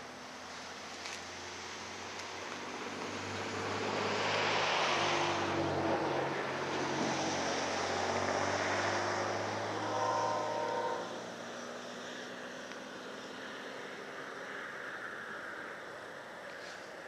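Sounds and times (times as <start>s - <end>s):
distant diesel freight train: 9.7s - 11.2s.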